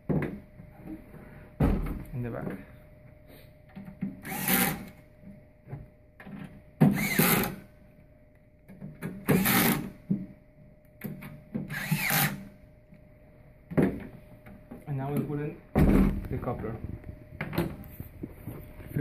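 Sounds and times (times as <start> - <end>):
electric screwdriver whine: 4.2 - 5.0, 6.8 - 7.6, 9.2 - 10.0, 11.7 - 12.5.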